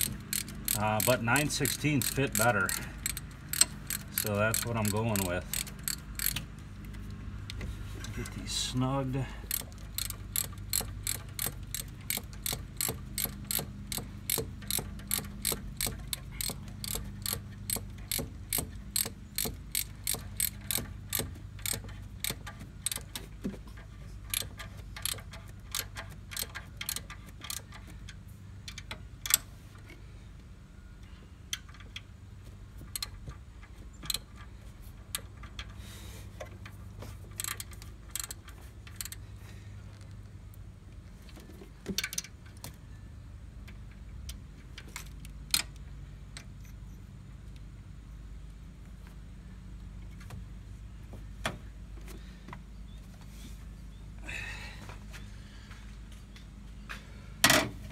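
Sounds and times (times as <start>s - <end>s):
socket ratchet clicking: 0.0s - 6.9s, 9.5s - 23.3s, 24.3s - 27.8s, 32.9s - 33.2s, 37.4s - 39.2s.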